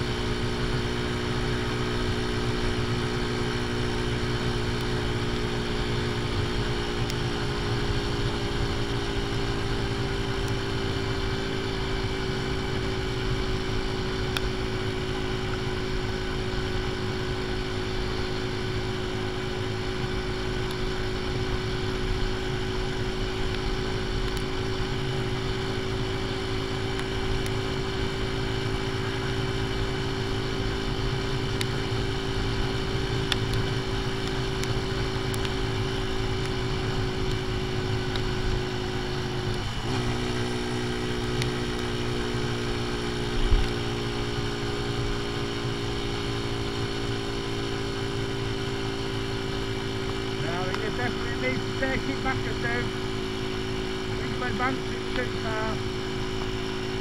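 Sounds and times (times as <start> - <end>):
motorcycle engine cruising: 0.0 - 57.0.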